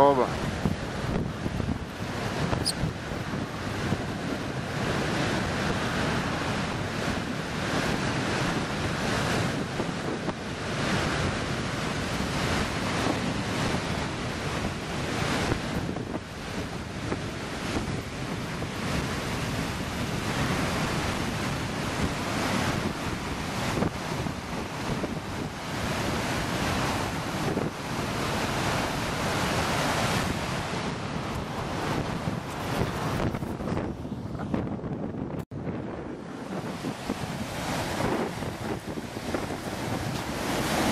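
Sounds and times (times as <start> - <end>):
heavy surf breaking: 0.0 - 40.9
wind buffeting microphone: 0.0 - 40.9.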